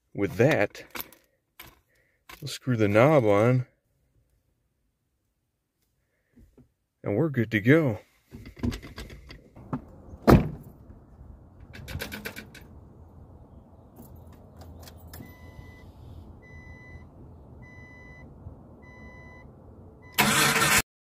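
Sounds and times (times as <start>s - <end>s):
thump: 9.6s - 10.7s
dashboard warning chime beeping: 15.2s - 20.3s.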